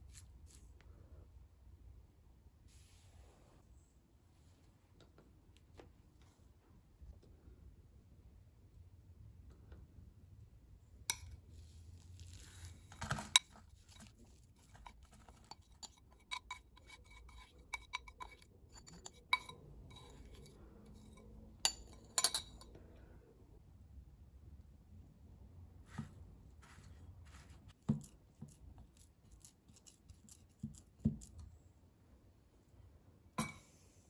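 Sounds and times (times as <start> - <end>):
metal spoon clinking on glass bowl: 13.2 - 22.7
soft scraping: 25.8 - 27.8.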